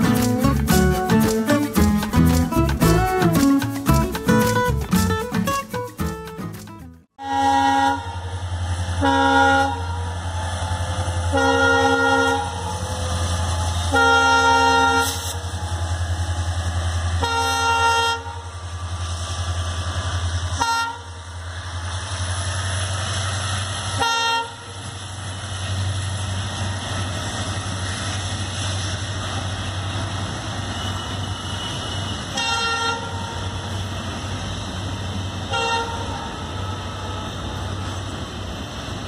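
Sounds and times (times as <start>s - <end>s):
diesel locomotive engine throbbing: 0.0s - 39.0s
rolling rumble of freight wagons: 0.0s - 39.0s
locomotive horn blasts: 7.2s - 8.4s, 9.0s - 10.1s, 11.3s - 12.7s, 13.9s - 15.4s, 17.2s - 18.5s, 20.6s - 21.2s, 24.0s - 24.8s, 31.6s - 33.5s, 35.5s - 37.4s.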